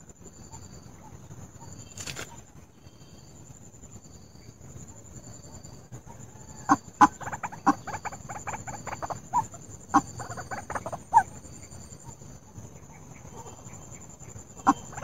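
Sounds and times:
waterhen clucking calls: 6.1 - 11.4, 14.6 - 15.0.

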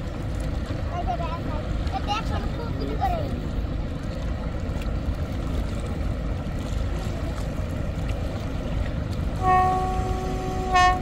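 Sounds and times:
steady low rumble: 0.0 - 11.0
boat horn blast: 9.3 - 11.0.

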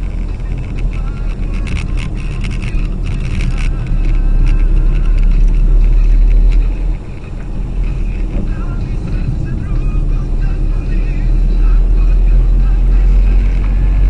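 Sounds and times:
sharp ticks: 0.0 - 9.8
engine and tyre rumble: 0.0 - 14.0.

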